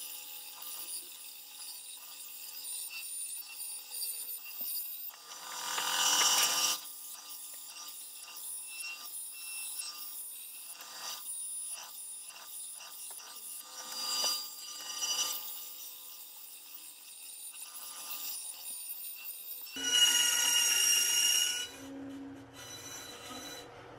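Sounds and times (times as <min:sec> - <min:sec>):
blade rasping through plate: 0:00.0 - 0:23.8
bandsaw running: 0:05.2 - 0:18.8, 0:19.6 - 0:21.9.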